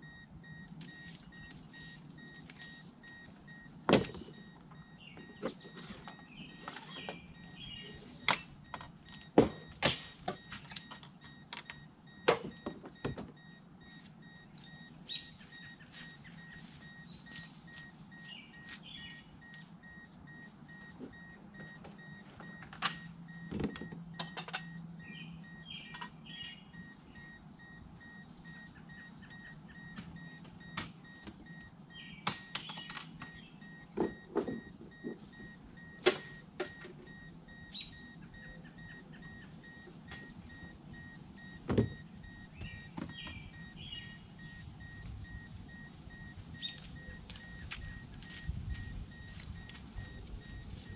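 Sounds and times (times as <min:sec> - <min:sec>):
car warning chime beeping: 0:00.0 - 0:50.9
knocks and clicks from handling: 0:21.0 - 0:24.8.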